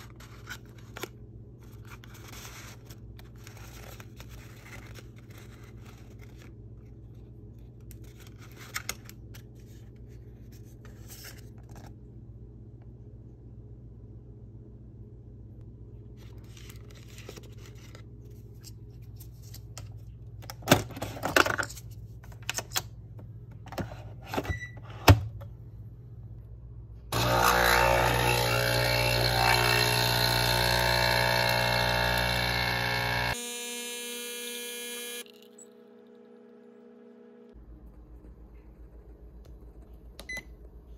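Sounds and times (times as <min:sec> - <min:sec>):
coffee machine pump buzzing: 0:27.1 - 0:37.5.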